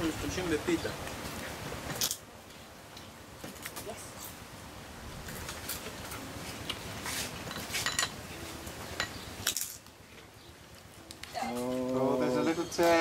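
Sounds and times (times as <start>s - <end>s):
utensils clinking: 7.4s - 8.2s, 9.0s - 9.9s.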